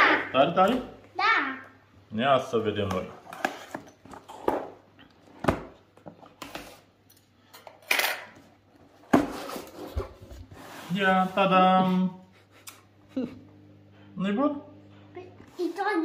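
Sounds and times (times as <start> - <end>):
cardboard packaging knocks and scrapes: 9.0 - 10.5.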